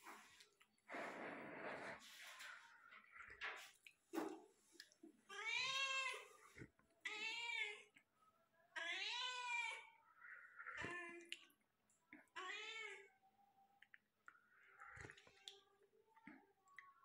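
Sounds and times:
cat meowing: 8.8s - 10.0s.

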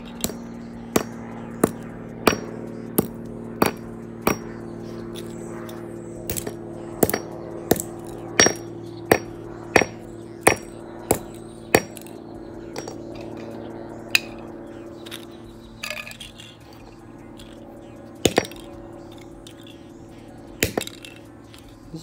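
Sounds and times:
hammer blows on concrete: 0.2s - 4.5s, 6.3s - 13.2s, 18.2s - 19.8s, 20.6s - 21.6s.

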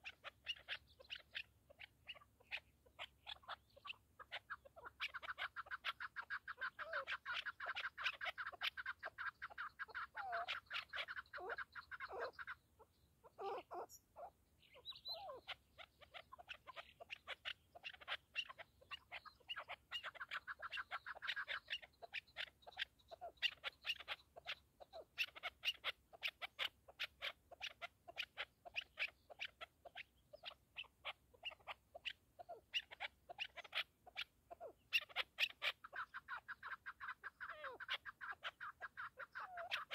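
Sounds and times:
partridge chuck calls: 0.0s - 39.9s.

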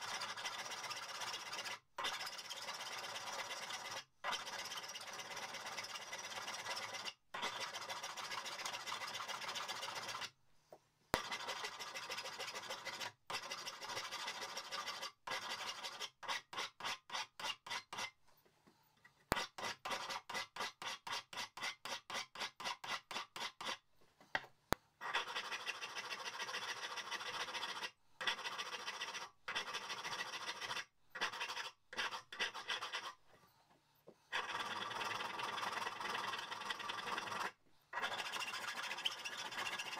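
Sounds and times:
hand file rasping on steel: 11.2s - 18.2s, 19.3s - 23.8s, 25.0s - 33.2s, 34.3s - 39.9s.

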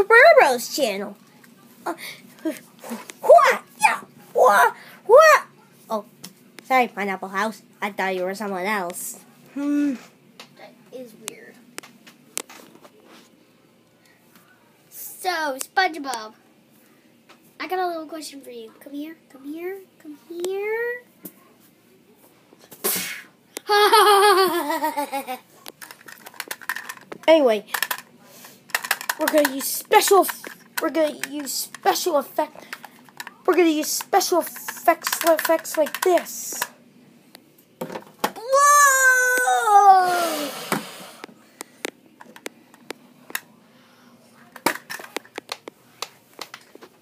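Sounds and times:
child laughing: 23.6s - 25.4s
breathy burst: 40.0s - 41.6s.

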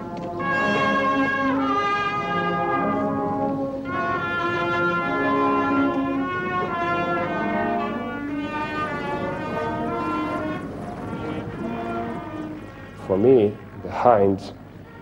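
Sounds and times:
orchestral music with brass: 0.0s - 15.0s.

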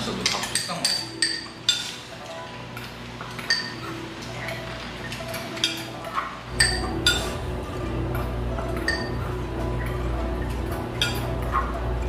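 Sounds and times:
utensils clinking on bowls: 0.0s - 12.0s.

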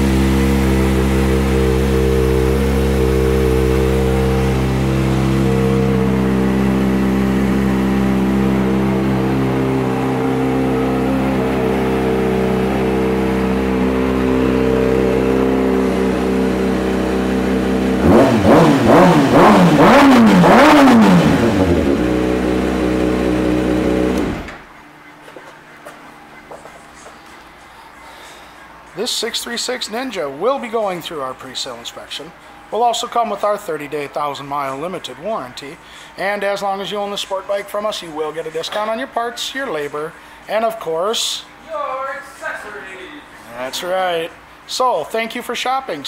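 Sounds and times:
motorcycle engine idling: 0.0s - 24.4s
engine revving: 0.0s - 24.7s.

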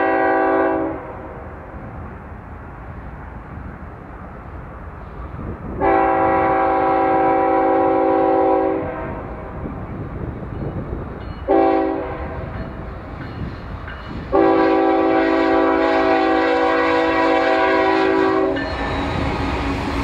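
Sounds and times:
locomotive air horn blasts: 0.0s - 1.2s, 5.8s - 9.3s, 11.4s - 12.5s, 14.3s - 19.6s
freight train rumbling: 0.0s - 20.0s.

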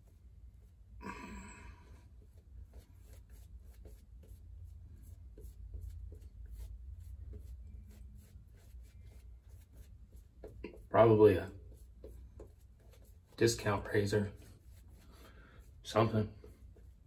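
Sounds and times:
shaving brush strokes: 2.2s - 17.0s.

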